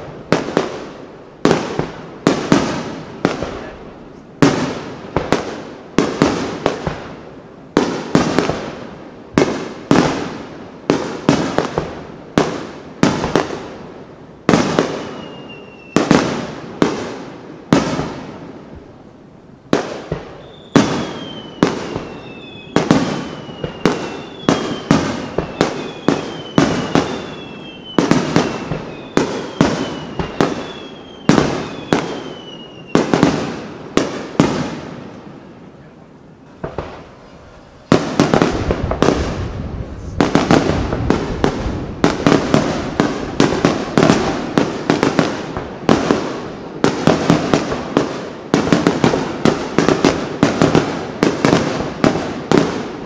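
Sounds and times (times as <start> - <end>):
short falling whistles: 15.1 - 16.0, 20.4 - 33.0
firework shells booming: 19.7 - 35.2, 36.4 - 53.0.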